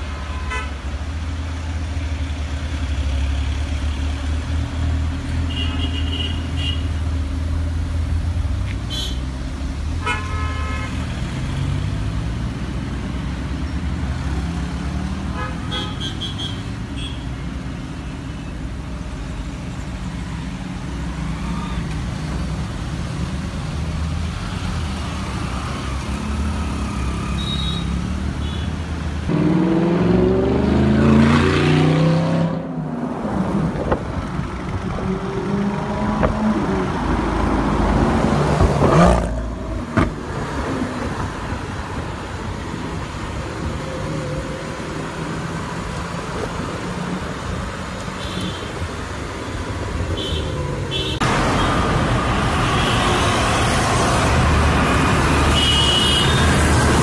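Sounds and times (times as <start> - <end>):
car horns honking: 0.2 - 0.8, 5.5 - 7.0, 10.0 - 11.1, 15.3 - 17.3, 50.1 - 53.9, 55.4 - 56.8
engine revving: 29.3 - 33.0.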